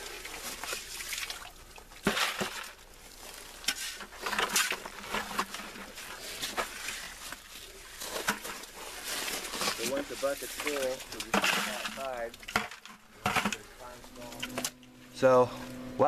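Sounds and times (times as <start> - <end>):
stones tipped into plastic buckets: 0.0 - 14.7
shovel scraping gravelly soil: 2.0 - 14.7.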